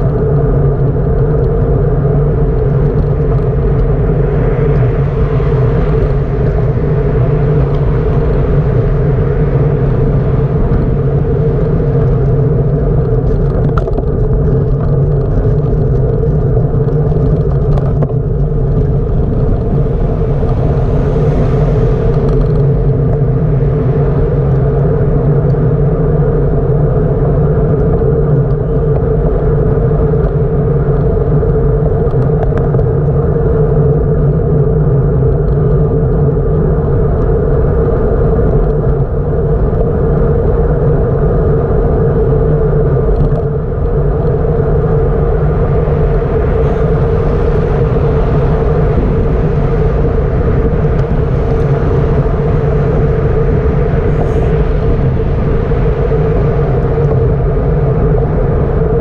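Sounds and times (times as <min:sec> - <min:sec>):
wind and road noise rumble: 0:00.0 - 0:59.0.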